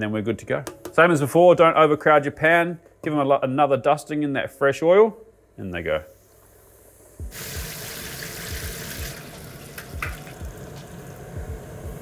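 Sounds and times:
food frying in hot oil: 7.3 - 11.3.

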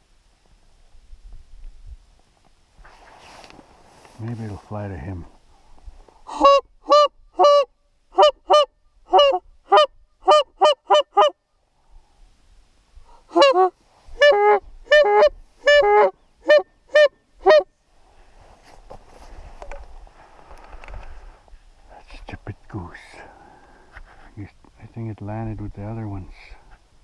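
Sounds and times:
goose honking: 13.3 - 17.6.

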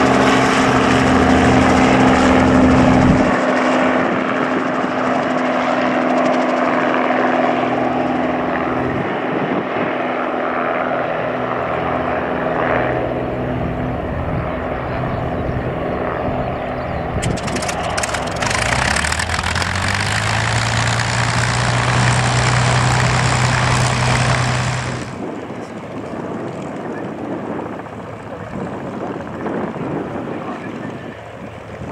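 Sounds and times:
helicopters flying past: 0.0 - 31.9
deeper hum: 16.9 - 25.4.

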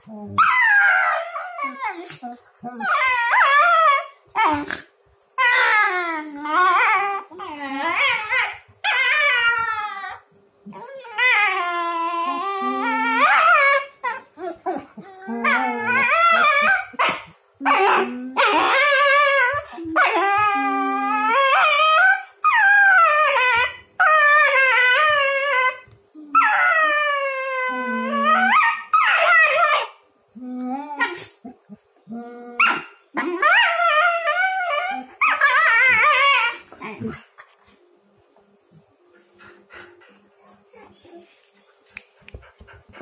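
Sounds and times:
dogs whining howls: 0.4 - 1.9, 2.8 - 4.6, 5.4 - 17.1, 17.7 - 29.9, 32.6 - 37.1.

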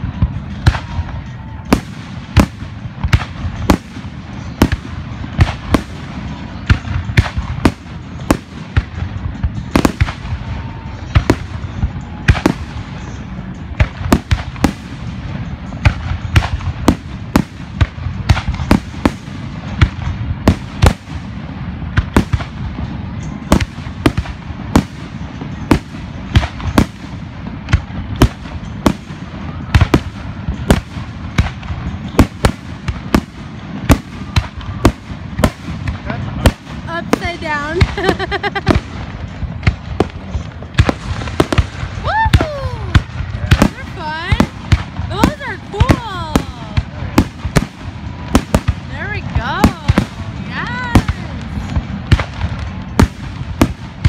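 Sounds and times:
fireworks banging and cracking: 0.0 - 54.0.

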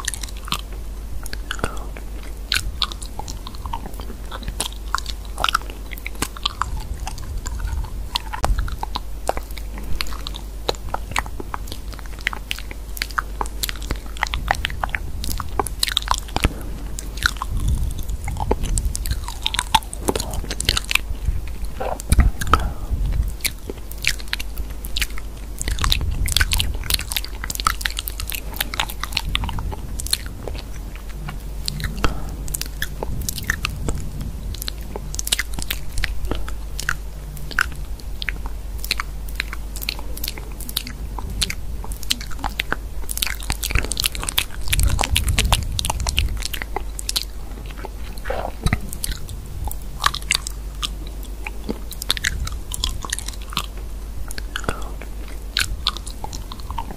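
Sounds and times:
crisp clicks and crunches: 0.0 - 56.9
faint low hum: 0.0 - 56.9.

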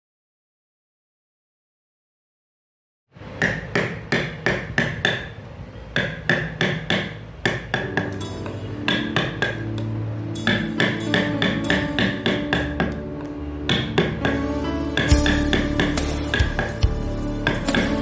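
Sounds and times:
mallet striking chisel: 3.4 - 5.3, 6.0 - 9.8, 10.4 - 13.0, 13.7 - 14.4, 15.0 - 16.8.

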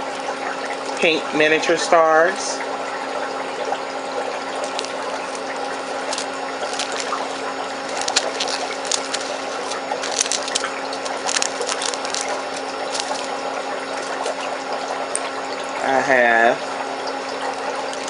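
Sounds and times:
background hum and hiss: 0.0 - 18.0
plastic bags crinkling: 4.4 - 15.3, 17.3 - 18.0.

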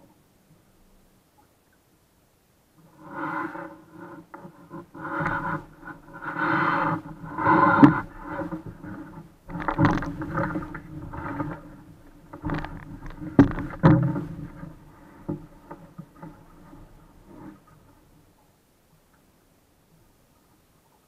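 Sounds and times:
water splashing against hull: 2.8 - 18.4
knocks and thumps on hull: 4.4 - 17.6.

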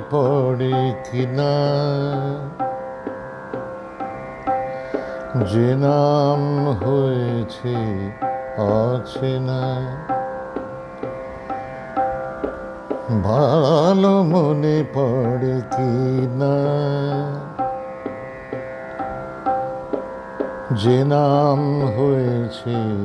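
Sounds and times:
man singing ornamented phrases: 0.0 - 2.8, 5.3 - 10.2, 13.1 - 17.7, 20.7 - 23.0
light rhythmic accompaniment: 0.0 - 23.0
steady drone: 0.0 - 23.0.

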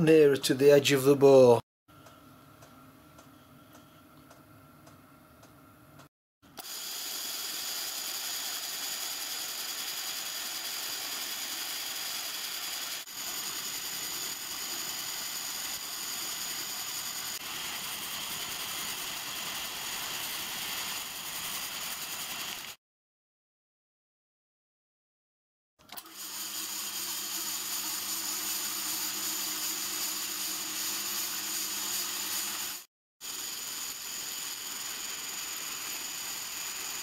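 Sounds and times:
drilling machine whining: 25.9 - 37.0.

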